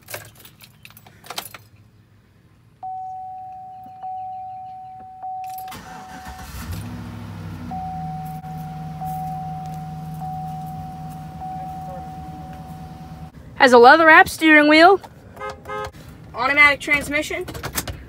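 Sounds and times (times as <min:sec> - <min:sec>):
keys jangling: 0:00.0 - 0:01.8
dashboard warning chime: 0:02.8 - 0:06.6, 0:07.7 - 0:13.3
car engine starting and idling: 0:05.2 - 0:18.0.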